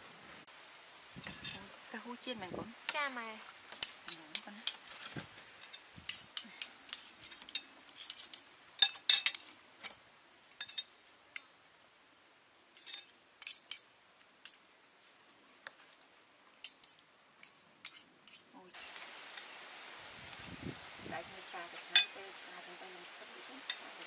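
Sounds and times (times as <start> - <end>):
cutlery clinking against dishes: 3.8 - 10.0, 12.8 - 13.9, 21.9 - 22.2.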